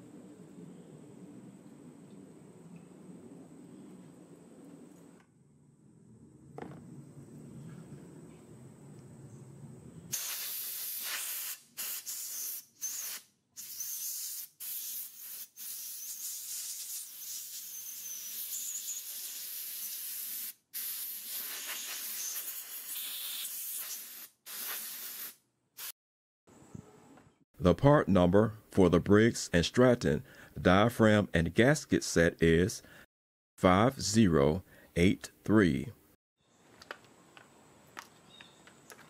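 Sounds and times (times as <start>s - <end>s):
compressed air hissing: 10.1s - 25.9s.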